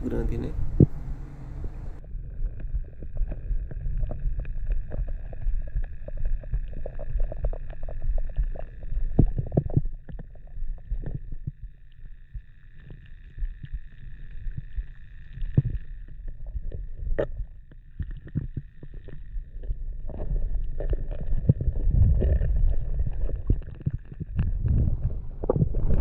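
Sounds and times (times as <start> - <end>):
faint high hum: 0.0 - 5.0
muffled underwater rumbling: 0.0 - 26.0.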